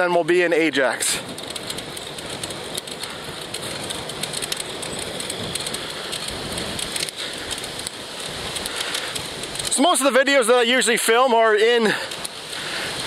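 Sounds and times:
wind rushing on microphone: 0.0s - 11.0s, 12.0s - 13.0s
small crackles: 0.6s - 13.0s.

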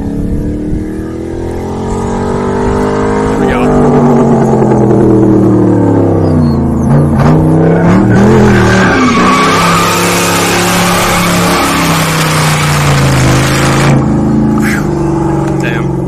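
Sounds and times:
car engine revving: 0.0s - 16.0s.

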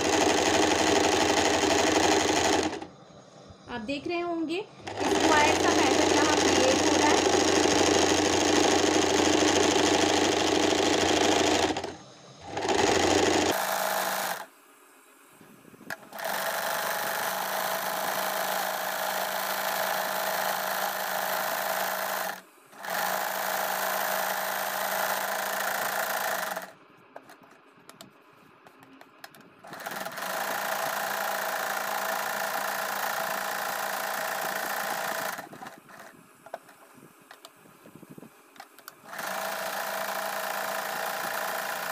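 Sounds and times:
electric sewing machine stitching: 0.0s - 3.0s, 4.8s - 14.5s, 15.9s - 26.8s, 29.6s - 36.1s, 39.0s - 41.9s.

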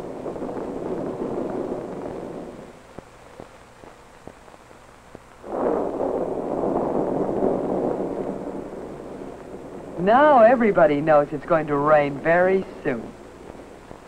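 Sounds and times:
wind blowing hard: 0.0s - 2.8s, 5.4s - 11.3s.

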